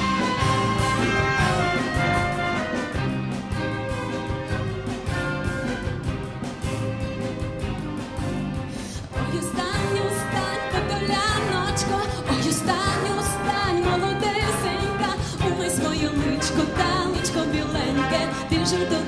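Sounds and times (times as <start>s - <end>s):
steady drum beat: 0.0s - 18.0s
jazz big band with strings: 0.0s - 19.0s
woman singing: 9.2s - 19.0s.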